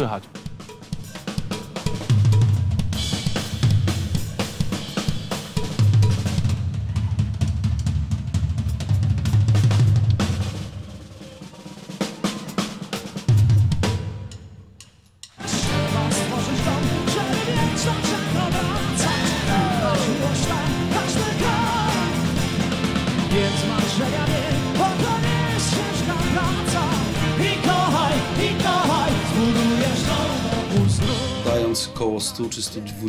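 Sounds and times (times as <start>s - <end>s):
full band playing: 0.0s - 14.4s, 15.3s - 33.0s
drum kit solo: 0.0s - 32.1s.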